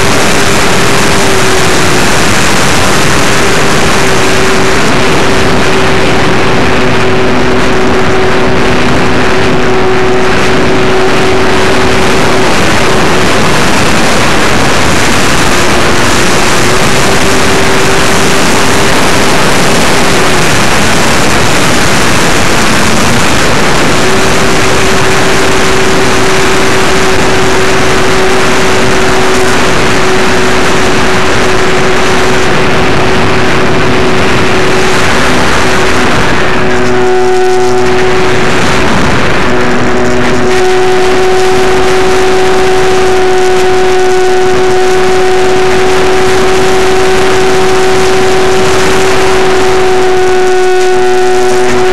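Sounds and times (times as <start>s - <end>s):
electric motor and propeller humming: 0.0s - 51.9s
wind rush on microphone: 0.0s - 51.9s.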